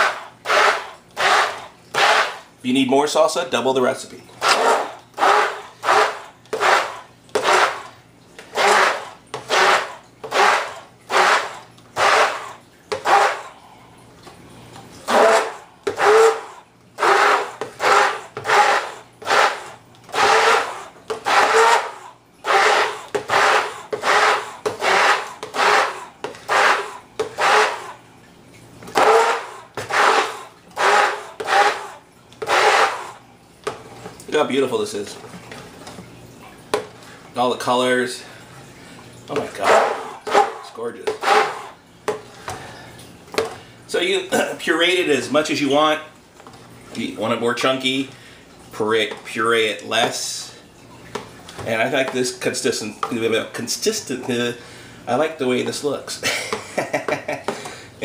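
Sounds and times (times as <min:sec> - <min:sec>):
immersion blender whirring: 0:00.0 - 0:02.5, 0:04.4 - 0:13.6, 0:15.0 - 0:28.0, 0:28.9 - 0:33.2, 0:39.3 - 0:41.8.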